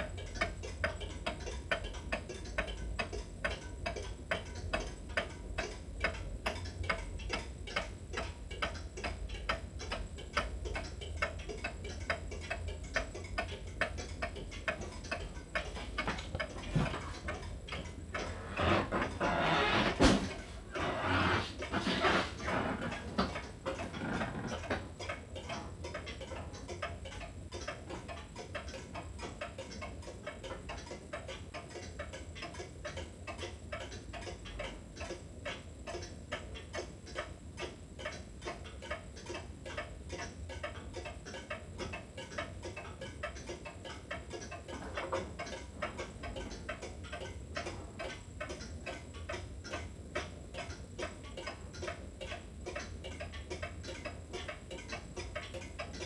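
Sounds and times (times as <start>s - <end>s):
clock ticking: 0.0s - 56.0s.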